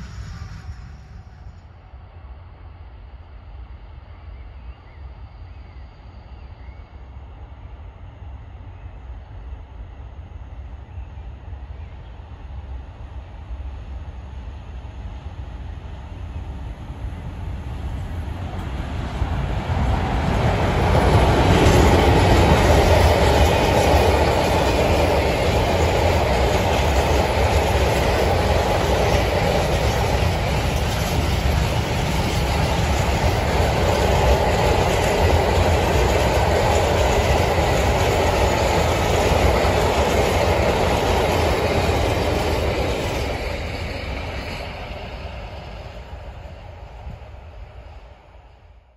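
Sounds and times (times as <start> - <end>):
diesel locomotive engine: 0.0 - 48.9
freight wagons rumbling on rails: 16.8 - 47.6.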